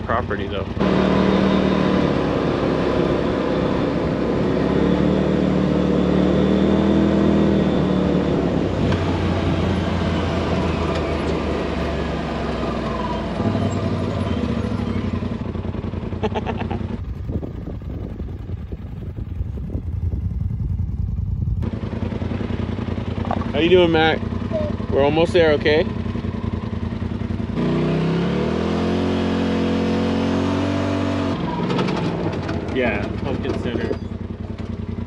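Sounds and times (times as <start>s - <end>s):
vehicle engine droning: 0.0s - 35.0s
rumble of ride noise: 8.1s - 27.4s.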